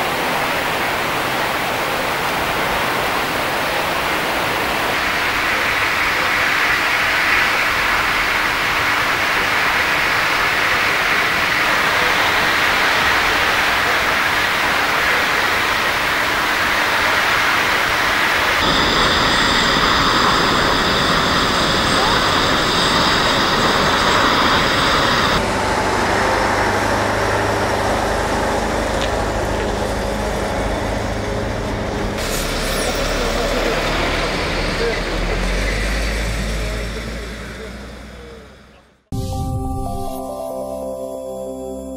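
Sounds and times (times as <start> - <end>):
high whine: 3.0 - 35.4, 39.1 - 41.9
large fire roaring: 3.8 - 38.6
fire engine motor humming: 4.6 - 32.4.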